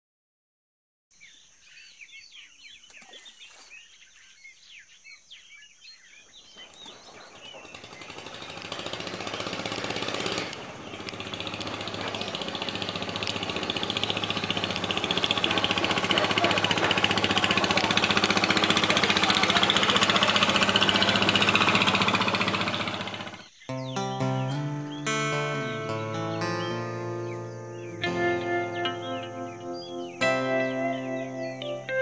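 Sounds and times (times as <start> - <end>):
birds chirping: 1.1 - 32.0
engine running: 6.5 - 32.0.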